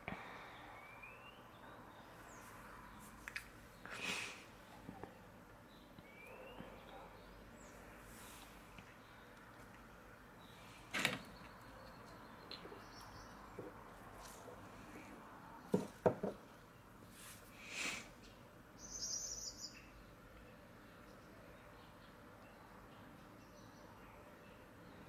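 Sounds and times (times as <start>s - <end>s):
background hiss: 0.0s - 11.6s, 12.8s - 21.0s
objects knocking on tabletop: 15.7s - 16.4s.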